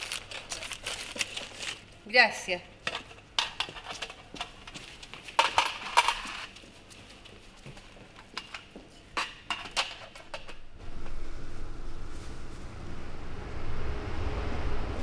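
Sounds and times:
low steady rumble: 10.6s - 15.0s.

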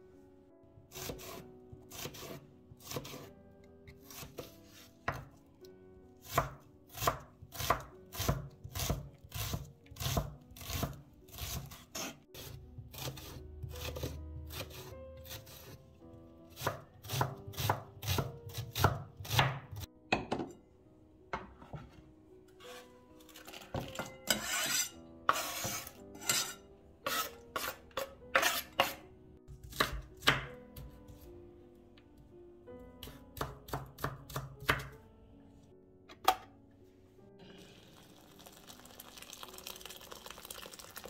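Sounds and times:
knife chopping on wooden board: 0.9s - 3.3s, 4.0s - 5.3s, 6.2s - 15.8s, 16.5s - 20.4s, 23.8s - 26.4s, 27.0s - 29.0s, 29.6s - 31.2s, 33.0s - 35.0s
knife scraping board: 22.6s - 22.9s, 24.2s - 29.0s.

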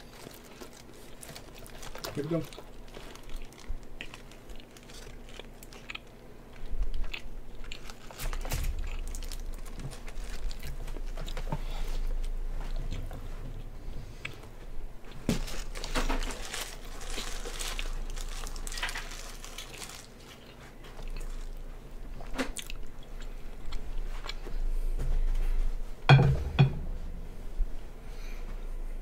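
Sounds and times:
person chewing and crunching: 0.0s - 24.8s
loud knocks: 26.1s - 26.8s.

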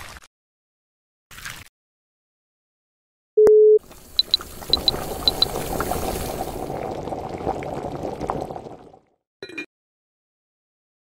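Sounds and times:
cooktop beep: 3.4s - 5.6s, 9.4s - 9.7s
soup boiling and bubbling: 3.8s - 9.2s.

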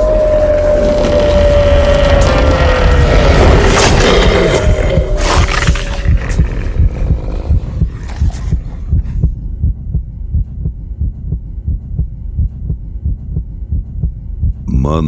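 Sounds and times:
heartbeat thumps: 4.6s - 14.8s.

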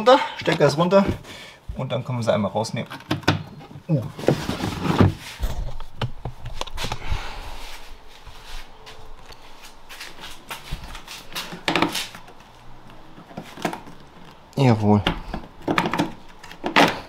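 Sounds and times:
handling rustling: 2.7s - 7.0s.

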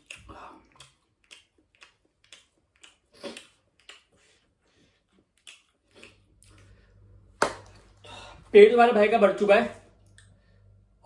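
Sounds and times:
chewing and mouth smacks: 0.0s - 6.8s.

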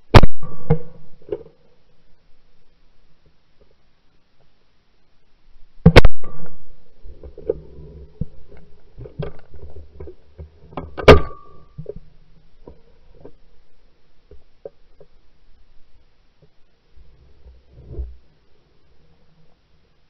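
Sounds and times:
shotgun firing: 0.1s - 1.0s.

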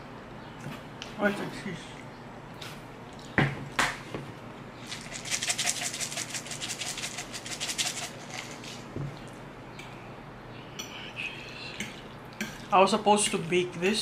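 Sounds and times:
cheese canister rattling: 4.9s - 8.9s.

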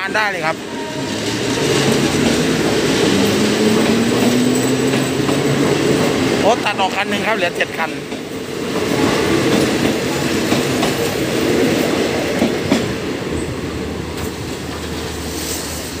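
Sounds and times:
train coaches rumbling past: 0.0s - 16.0s
wheels clacking over rail joints: 1.2s - 7.0s.

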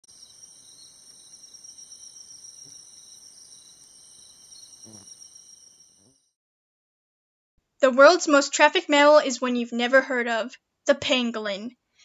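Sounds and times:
insect chorus chirring: 0.0s - 6.3s.

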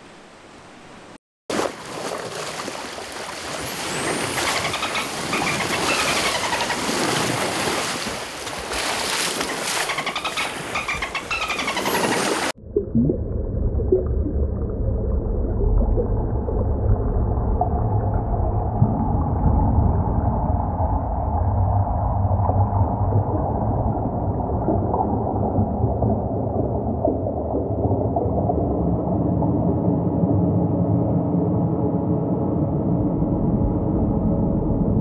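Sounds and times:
dolphin squeaky calls: 3.4s - 7.0s, 9.4s - 12.5s
underwater water rumble: 12.6s - 35.0s.

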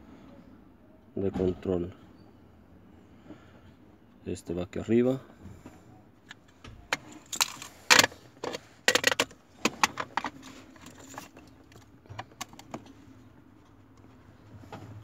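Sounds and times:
plastic and metal clicks and clatter: 6.3s - 13.0s.

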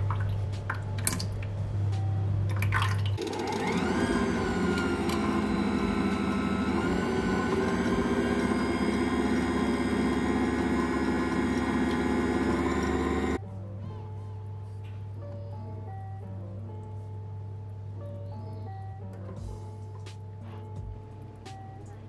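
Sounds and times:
stand mixer motor whisking liquid: 3.2s - 13.4s.

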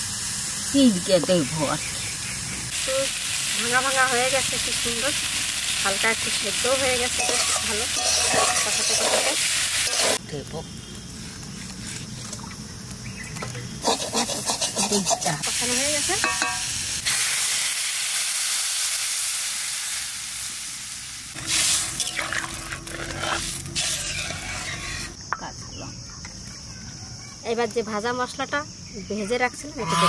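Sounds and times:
water sizzling in hot wok: 0.0s - 13.0s, 13.8s - 25.2s
spatula scraping wok: 6.0s - 10.2s, 13.8s - 15.5s, 21.4s - 25.2s.

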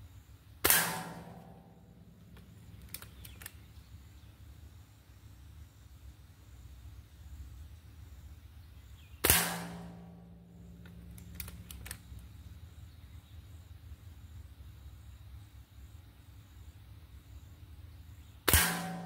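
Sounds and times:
air rifle shot: 0.6s - 1.8s, 9.2s - 10.9s, 18.5s - 19.0s
pellet striking steel plate: 0.6s - 2.1s, 9.2s - 10.8s, 18.5s - 19.0s
light clicks: 2.3s - 3.6s, 10.8s - 12.3s.

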